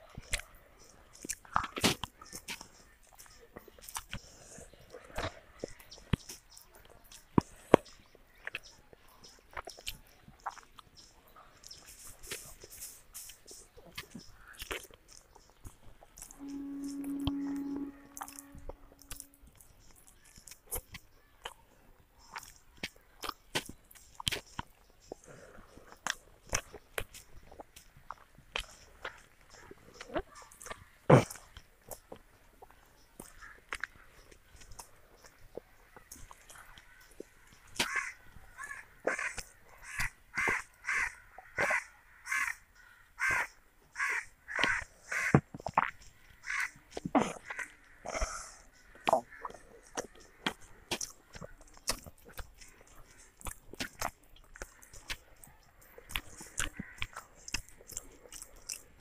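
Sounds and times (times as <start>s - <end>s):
chewing food: 0.0s - 41.8s, 43.2s - 59.0s
wet mouth clicks and smacks: 1.1s - 8.7s, 9.4s - 10.9s, 11.6s - 16.4s, 22.2s - 38.0s, 45.5s - 46.1s, 49.0s - 59.0s
crow cawing: 37.8s - 45.4s, 46.4s - 46.8s, 56.7s - 57.1s.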